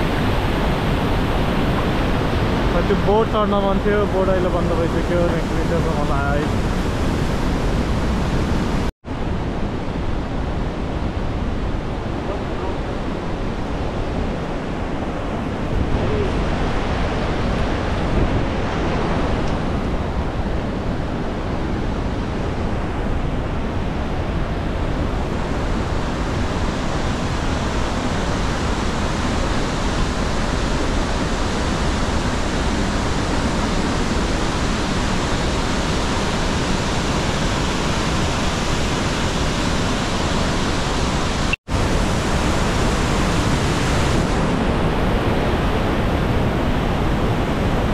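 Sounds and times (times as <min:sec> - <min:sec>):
waterfall rushing: 0:00.0 - 0:08.9.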